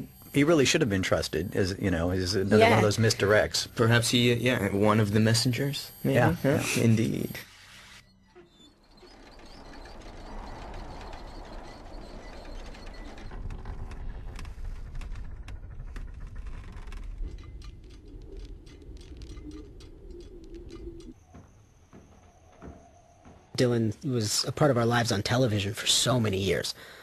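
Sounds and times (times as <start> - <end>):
scattered clicks and ticks: 8.5 - 21.2
steady low rumble: 10.0 - 21.2.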